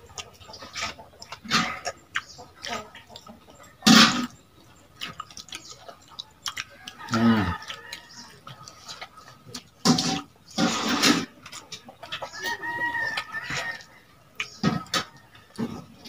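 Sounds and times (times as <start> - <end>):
chickens clucking: 0.0 - 16.0
rooster crowing: 6.8 - 8.3, 12.4 - 14.0.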